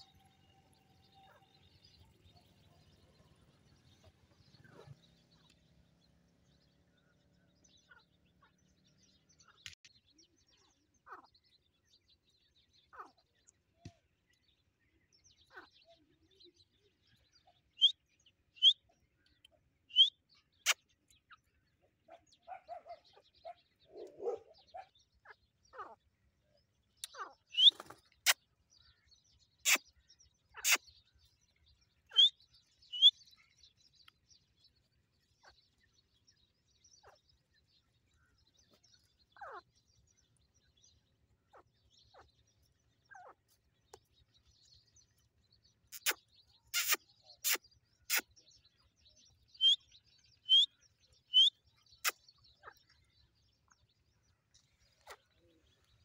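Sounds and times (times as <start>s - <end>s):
francolins chirping: 0.0s - 13.6s, 14.9s - 56.0s
low bird call notes: 27.0s - 27.9s, 32.1s - 33.2s, 49.6s - 49.8s, 50.4s - 50.7s, 51.3s - 52.2s.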